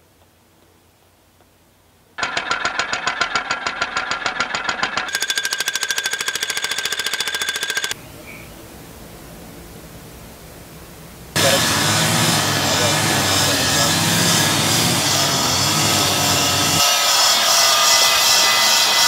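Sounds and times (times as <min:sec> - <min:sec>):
steady low hiss: 0:00.0 - 0:02.2, 0:08.0 - 0:11.5
demolition hammer pounding: 0:11.4 - 0:16.8.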